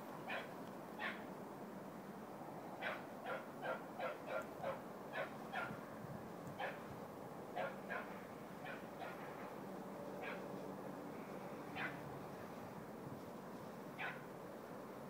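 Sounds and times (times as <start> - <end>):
dog yelping: 0.3 - 1.2, 2.8 - 5.8, 7.6 - 9.3, 10.2 - 10.4, 11.8 - 12.0, 14.0 - 14.2.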